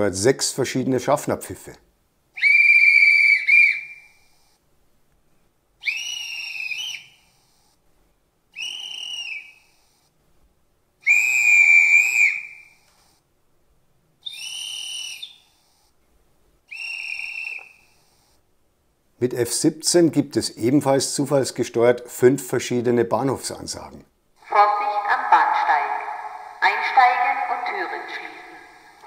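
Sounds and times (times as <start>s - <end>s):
shrill whistle blasts: 2.4s - 4.3s, 5.8s - 7.4s, 8.5s - 10.0s, 11.0s - 12.8s, 14.2s - 15.6s, 16.7s - 18.3s.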